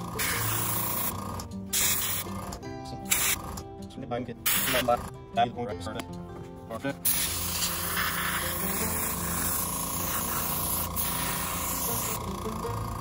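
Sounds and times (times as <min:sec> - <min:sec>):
airbrush hissing: 0:00.0 - 0:02.4, 0:03.1 - 0:03.6, 0:04.5 - 0:05.1, 0:07.0 - 0:13.0.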